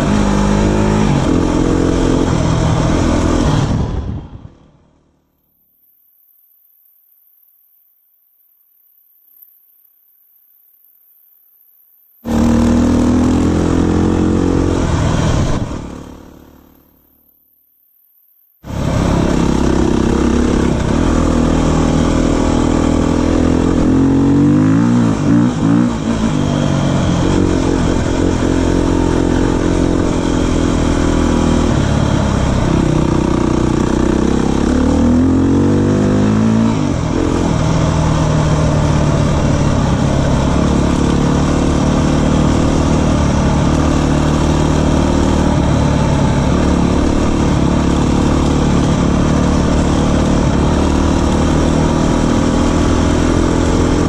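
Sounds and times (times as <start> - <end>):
motorcycle engine running: 18.6 - 54.0.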